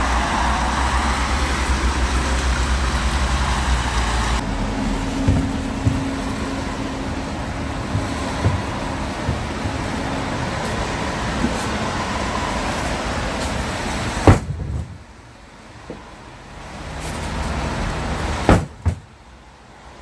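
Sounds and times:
steady background noise: 0.0 - 20.0
firewood bags thumping on deck: 5.2 - 6.2, 7.8 - 9.8, 14.2 - 15.0, 18.4 - 19.1.

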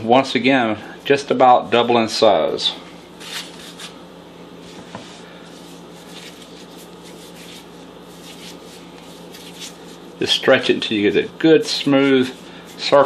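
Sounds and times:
steady low hum: 0.0 - 13.0
hands working wet dough: 4.6 - 13.0.

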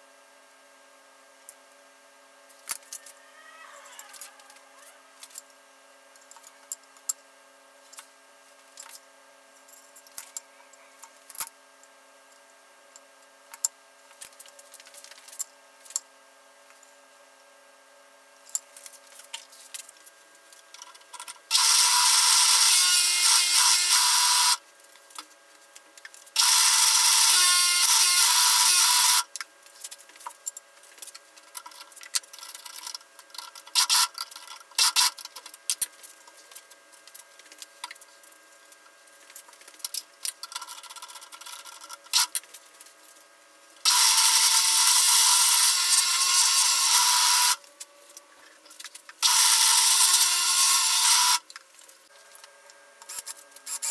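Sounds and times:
power tool running: 21.5 - 24.6, 26.4 - 29.3, 43.8 - 47.6, 49.2 - 51.4.

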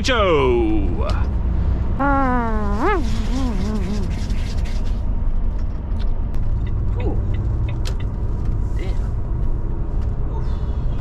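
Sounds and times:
lorry engine and road noise: 3.0 - 11.0.

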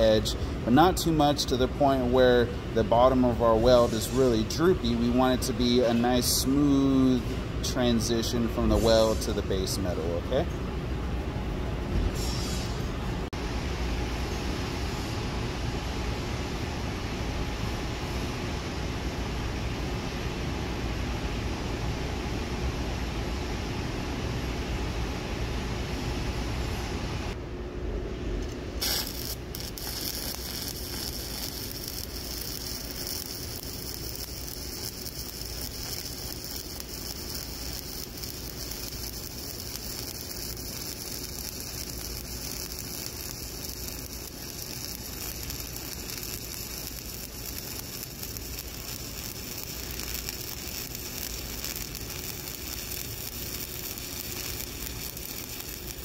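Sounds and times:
welding arc sizzling: 0.0 - 10.2, 28.7 - 56.0.

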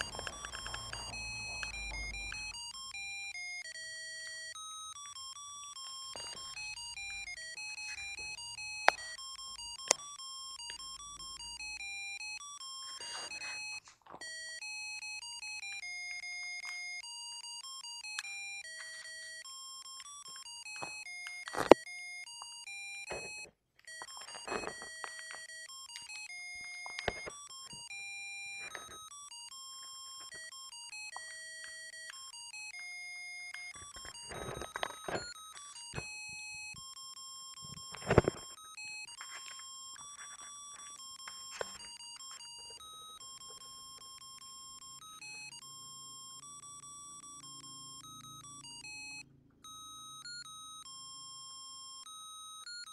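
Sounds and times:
handling clicks and rustles: 0.0 - 11.0, 15.3 - 36.7, 37.6 - 43.6
buzzer beeping electronic melody: 0.0 - 52.9.

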